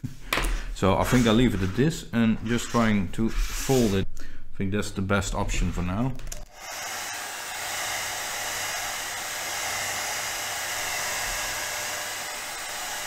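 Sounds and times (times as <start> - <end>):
hot-air blower hissing: 6.5 - 13.0.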